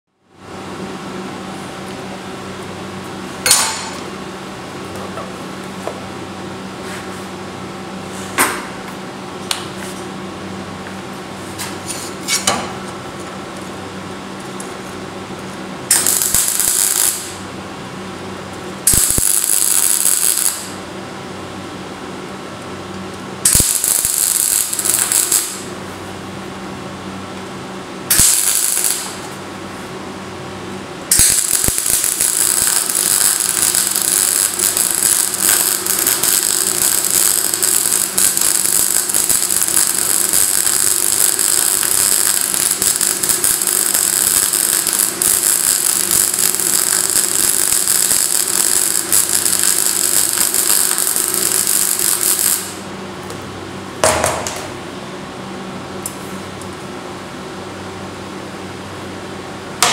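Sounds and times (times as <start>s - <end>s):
welding arc crackling: 15.4s - 17.4s, 18.7s - 20.8s, 23.4s - 25.8s, 28.1s - 29.5s, 31.0s - 52.9s.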